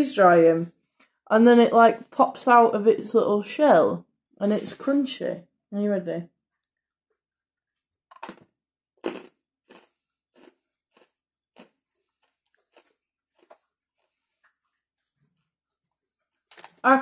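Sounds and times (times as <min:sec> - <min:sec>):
crunchy candy being chewed: 0:08.1 - 0:15.1.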